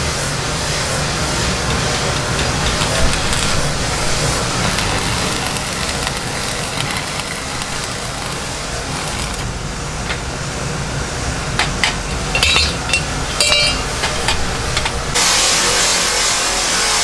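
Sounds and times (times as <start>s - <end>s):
low workshop hum: 0.0s - 17.0s
metal pieces clinking: 12.1s - 14.4s.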